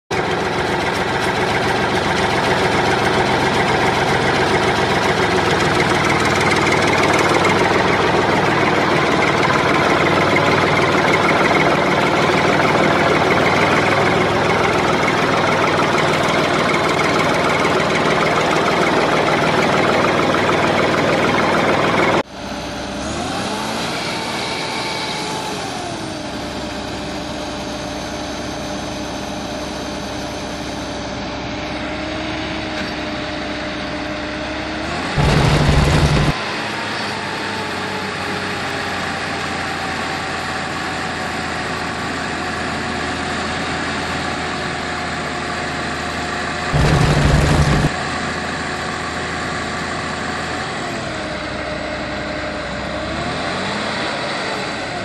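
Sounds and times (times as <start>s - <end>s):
loud mechanical motor drone: 0.2s - 27.0s, 34.9s - 36.5s, 46.7s - 48.0s
motor whine: 35.2s - 36.4s, 46.7s - 48.0s.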